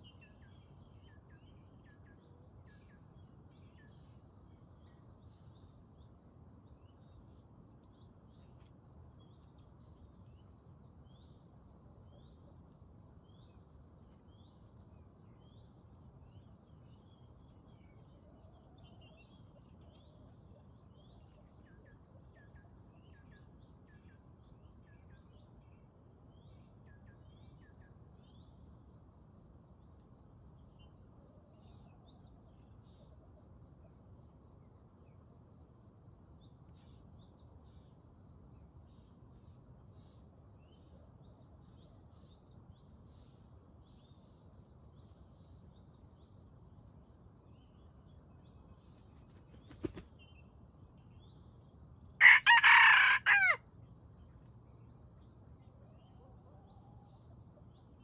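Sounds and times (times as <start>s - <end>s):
insect trill: 0.0s - 58.0s
rooster crowing: 52.2s - 53.6s.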